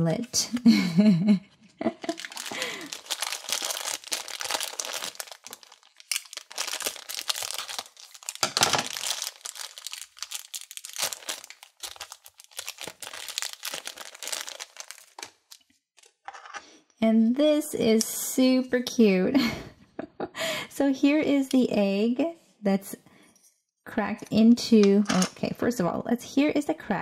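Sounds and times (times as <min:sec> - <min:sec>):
plastic bag crinkling: 0:02.0 - 0:15.7.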